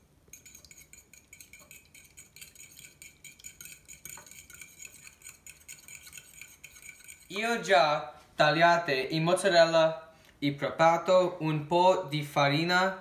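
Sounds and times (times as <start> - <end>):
fork beating eggs in bowl: 0.0 - 7.7.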